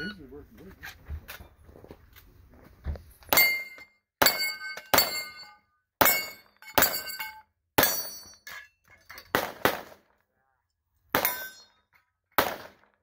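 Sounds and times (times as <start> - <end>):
metallic ring of steel targets: 3.3 - 9.4, 11.1 - 12.0
pistol shots: 9.3 - 10.1, 11.1 - 11.4, 12.4 - 12.9.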